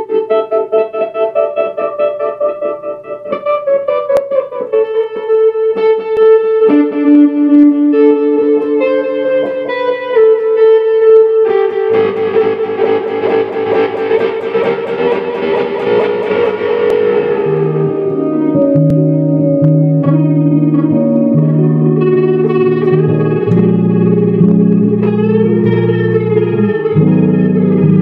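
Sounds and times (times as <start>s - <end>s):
pulsing tremolo instrument notes: 11.9s - 18.5s.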